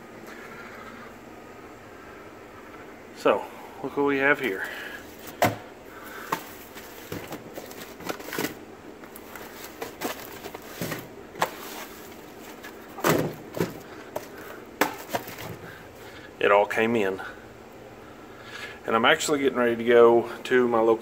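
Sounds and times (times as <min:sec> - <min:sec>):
boxes knocking and clicking: 0:06.2 - 0:15.6.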